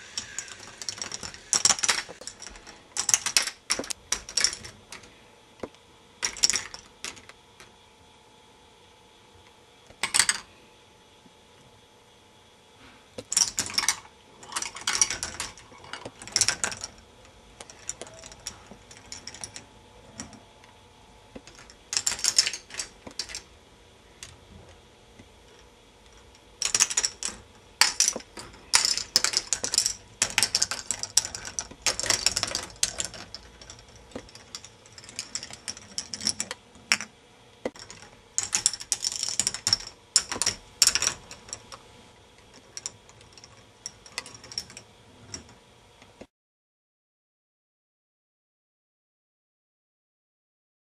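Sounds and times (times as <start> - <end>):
plastic balls clattering on tracks: 0.0 - 5.1, 13.2 - 17.0, 21.4 - 23.5, 26.6 - 37.0, 37.6 - 41.8.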